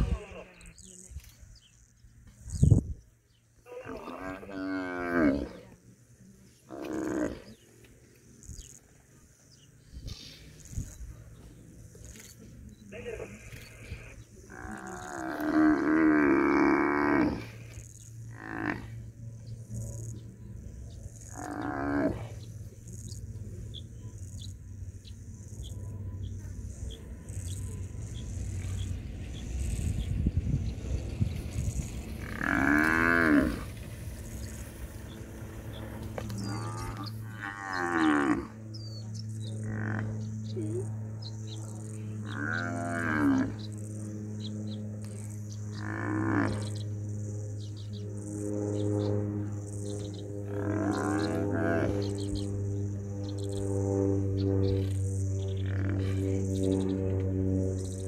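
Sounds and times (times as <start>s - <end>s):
buffalo bellowing: 32.2s - 33.7s, 36.2s - 38.6s, 50.4s - 52.0s
buffalo bellowing in distress: 32.2s - 33.7s.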